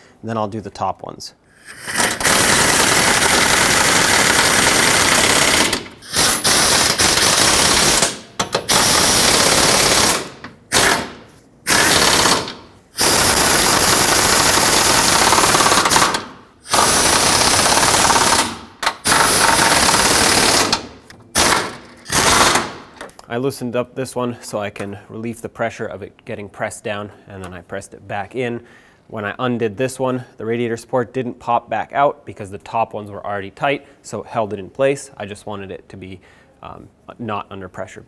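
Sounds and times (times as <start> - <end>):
pneumatic wrench bursts: 1.6 - 23.0.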